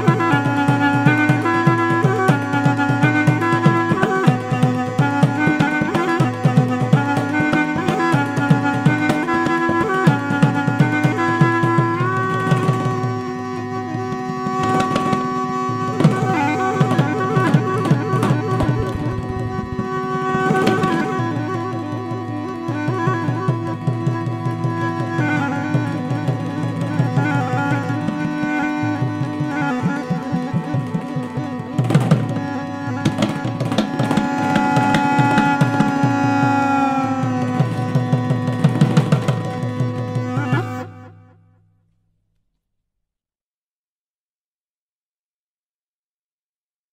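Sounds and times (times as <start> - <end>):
reed pipe playing held notes: 13.6 - 41.3
hand drumming on barrel drum: 17.4 - 21.2.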